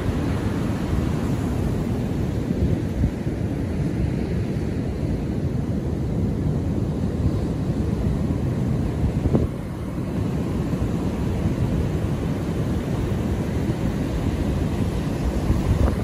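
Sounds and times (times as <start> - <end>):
ocean surf rumbling: 0.0 - 16.0
wind buffeting microphone: 7.2 - 16.0.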